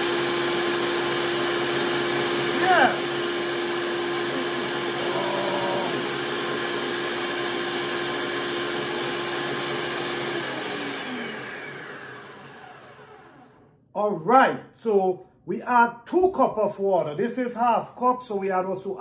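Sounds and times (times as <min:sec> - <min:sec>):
blender motor whine: 0:00.0 - 0:13.8.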